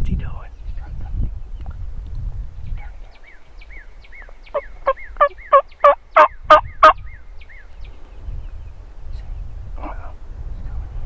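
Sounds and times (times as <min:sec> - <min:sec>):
turkey call yelps: 0:04.5 - 0:07.0.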